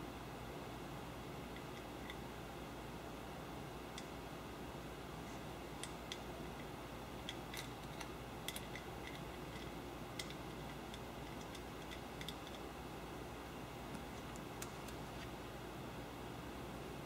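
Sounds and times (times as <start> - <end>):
steady low hiss: 0.0 - 17.0
small metallic clicks: 5.8 - 12.6.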